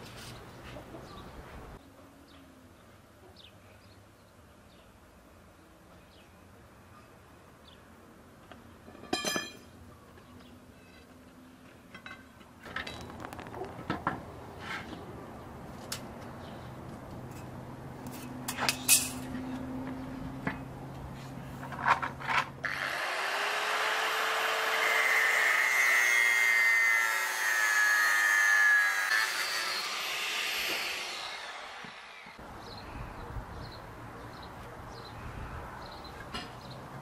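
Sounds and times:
angle grinder cutting metal rod: 0:22.6 - 0:32.4.

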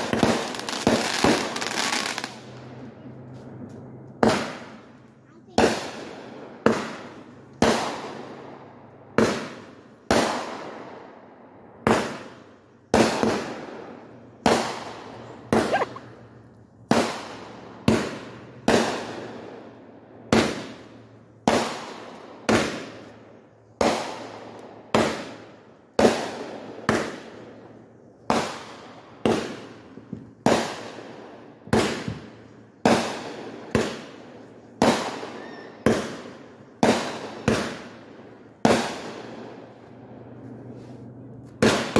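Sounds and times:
fireworks bangs: 0:00.0 - 0:11.2, 0:11.8 - 0:23.2, 0:23.8 - 0:41.9.

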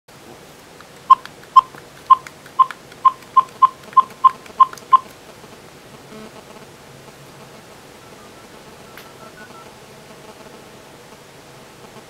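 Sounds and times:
phone keypad beeps: 0:01.1 - 0:05.1, 0:08.1 - 0:09.6.

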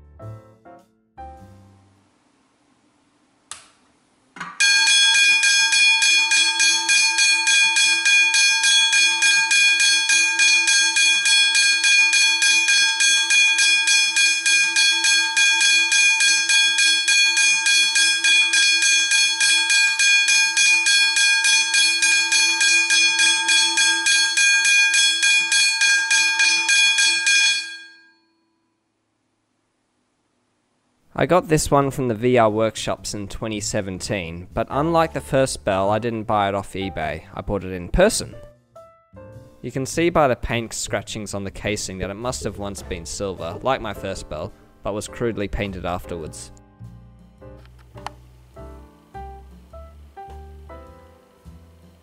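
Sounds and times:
level crossing bell ringing: 0:04.6 - 0:28.6.

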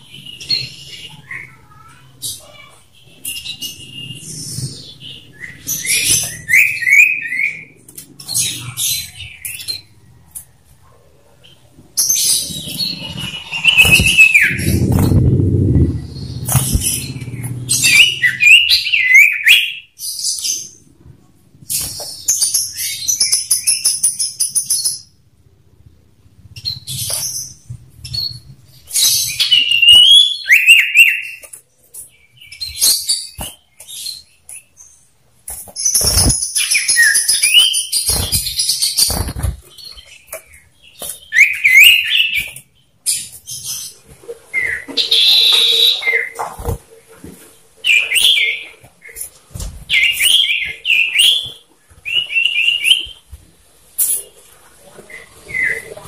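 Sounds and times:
birds chattering trills: 0:00.0 - 0:10.8, 0:11.4 - 0:25.2, 0:26.3 - 0:53.2
low fluttering rumble: 0:12.4 - 0:18.0.

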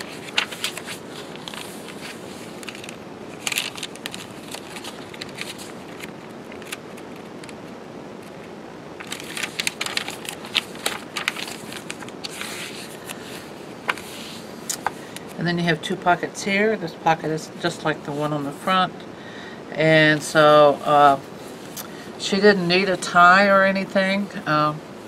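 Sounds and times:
paper pages rustling: 0:00.0 - 0:15.3.

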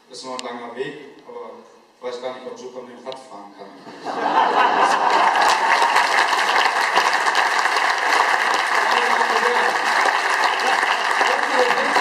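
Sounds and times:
audience applauding: 0:04.4 - 0:12.0.

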